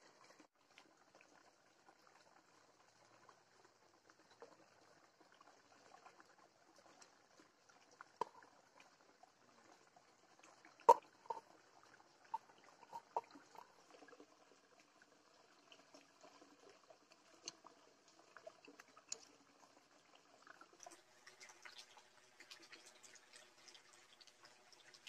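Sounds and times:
curry poured from metal pot: 10.9 - 14.2.

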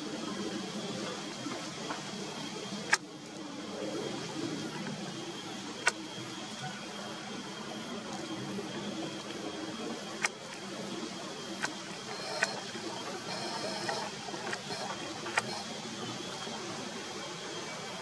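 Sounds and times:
sharp clicks: 2.8 - 3.1, 11.6 - 15.6.

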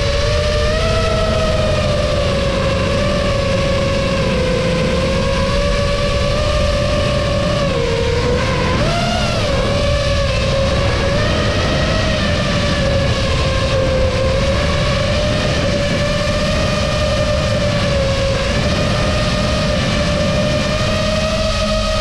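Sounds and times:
drone motors whining: 0.0 - 22.0
low rushing noise: 0.0 - 22.0.

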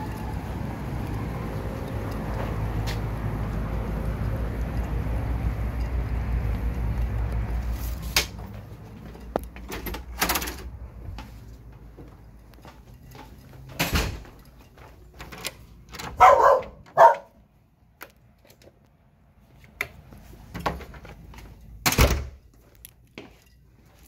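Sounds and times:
door thudding: 13.8 - 14.3, 21.8 - 22.4
dog barking: 16.2 - 17.4.

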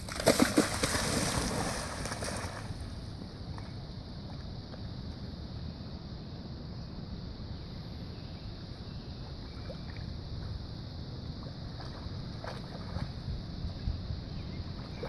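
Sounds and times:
water splashes: 0.0 - 3.0, 11.4 - 13.4
water sloshing in creek: 0.0 - 5.1, 9.2 - 15.0.

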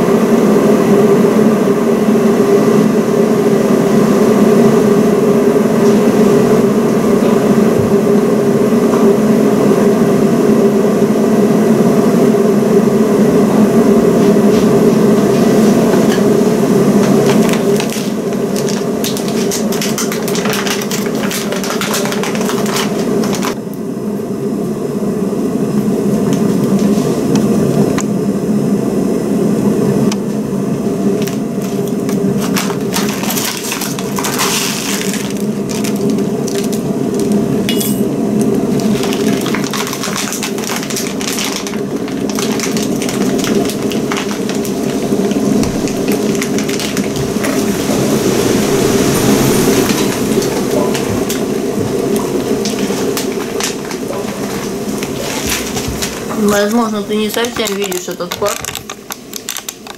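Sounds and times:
electric kettle heating water: 0.0 - 59.9
small crackles and clinks: 52.0 - 59.9.

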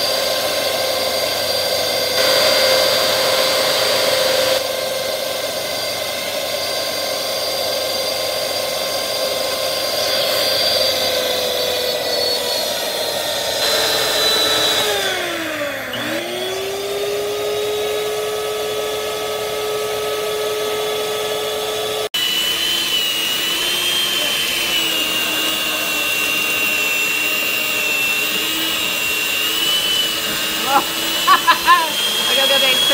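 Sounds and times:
stand mixer motor whining: 0.0 - 32.9.

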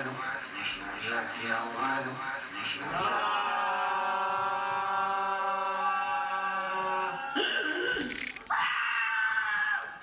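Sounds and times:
loud vocal cry: 2.9 - 10.0.

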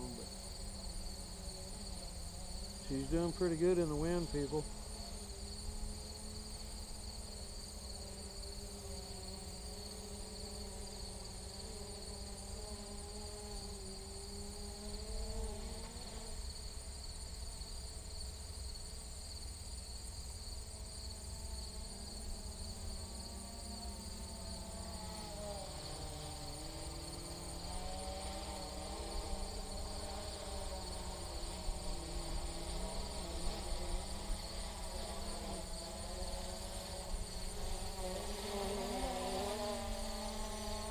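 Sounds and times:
drone buzzing in flight: 0.0 - 16.8, 20.6 - 40.9
high insect trill: 0.0 - 40.9.

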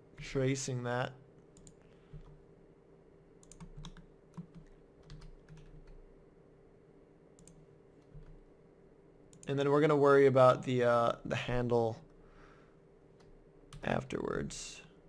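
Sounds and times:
low steady hum: 0.0 - 15.0
keyboard keystrokes: 3.4 - 6.0.

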